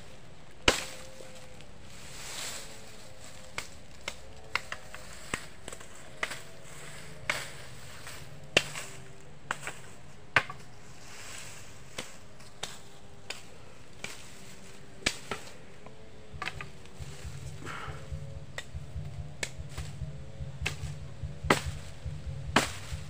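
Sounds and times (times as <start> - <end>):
machete chopping branches: 0.6 - 1.6, 2.4 - 10.7, 11.7 - 15.7, 16.3 - 18.8, 20.6 - 21.9, 22.6 - 23.0.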